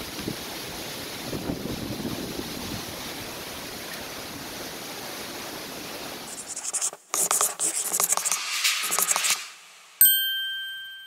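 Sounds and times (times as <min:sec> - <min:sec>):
wind buffeting microphone: 0:00.0 - 0:04.7
storm wind through trees: 0:00.0 - 0:06.3.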